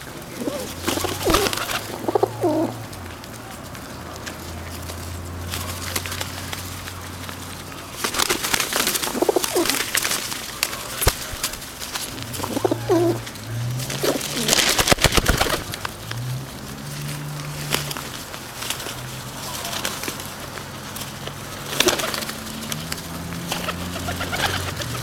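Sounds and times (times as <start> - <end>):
pigeons cooing: 0.0 - 3.0, 8.1 - 10.0, 11.8 - 16.2, 21.6 - 25.0
wings flapping and scuffling: 0.0 - 25.0.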